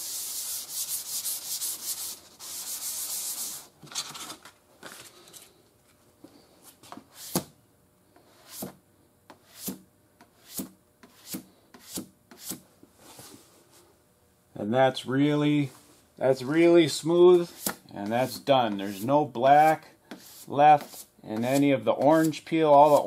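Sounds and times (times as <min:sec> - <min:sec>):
sandpaper sanding strokes: 0:00.0 - 0:03.7, 0:17.4 - 0:23.0.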